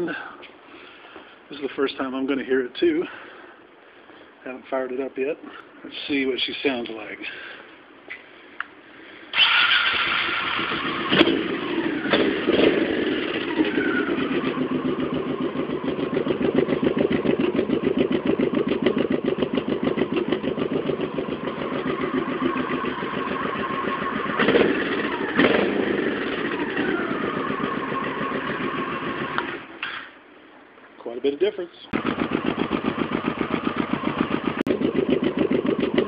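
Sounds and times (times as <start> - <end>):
motorcycle engine idling: 9.4 - 29.7, 31.9 - 36.0
motorcycle throttle blips: 9.4 - 30.0, 32.0 - 36.0.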